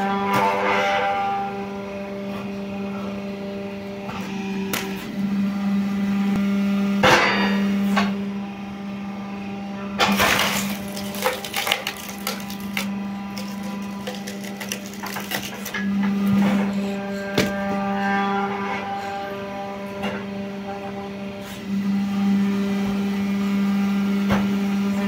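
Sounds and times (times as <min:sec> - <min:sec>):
log splitter motor humming: 0:10.0 - 0:17.5
logs cracking and splintering: 0:10.1 - 0:15.8.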